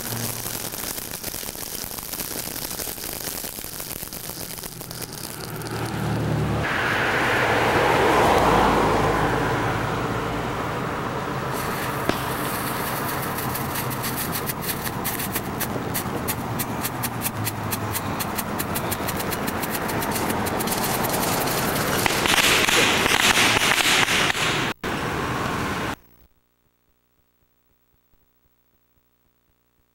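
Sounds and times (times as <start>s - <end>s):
firework fountain hissing and crackling: 0.0s - 8.5s, 11.5s - 26.0s.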